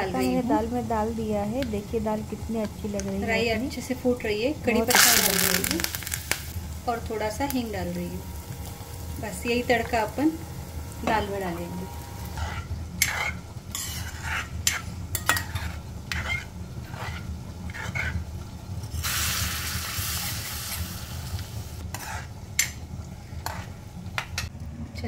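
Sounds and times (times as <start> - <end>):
food sizzling: 0.0 - 24.5
metal ladle scraping a pan: 8.2 - 19.4, 21.8 - 22.8, 23.4 - 23.8.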